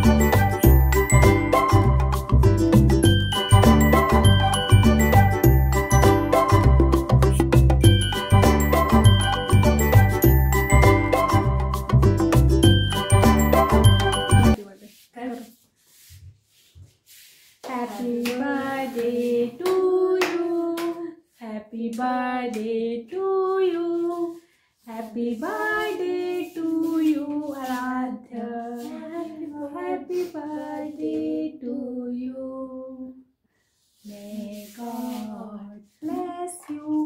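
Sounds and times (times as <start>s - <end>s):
women and children singing: 17.6s - 33.2s, 34.0s - 37.0s.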